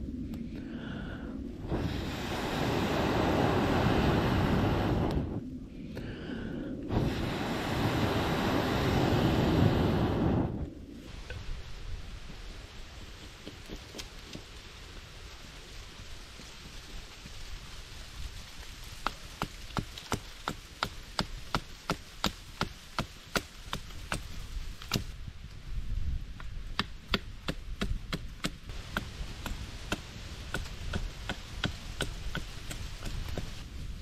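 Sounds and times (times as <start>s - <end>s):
wood being chopped: 19.0s - 25.1s, 26.4s - 33.6s.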